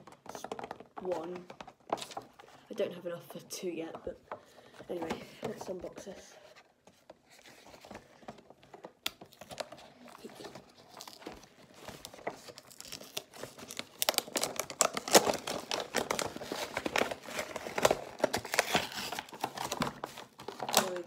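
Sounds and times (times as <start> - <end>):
plastic packaging crinkling: 7.2 - 21.0.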